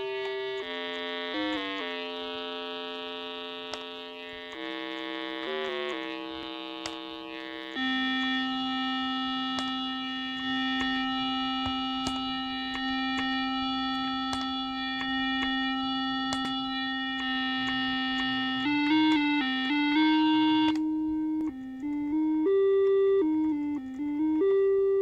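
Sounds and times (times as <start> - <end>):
synthesizer steady note: 0.0 - 25.0
faint clicks: 3.7 - 8.4.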